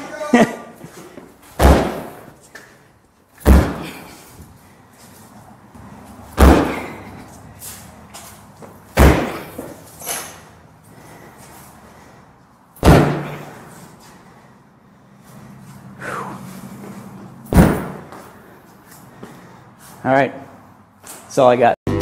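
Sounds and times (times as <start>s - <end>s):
boots kicking a door: 1.6s - 2.2s, 3.4s - 4.0s, 6.4s - 7.0s, 9.0s - 9.8s, 12.8s - 13.5s, 17.5s - 18.2s.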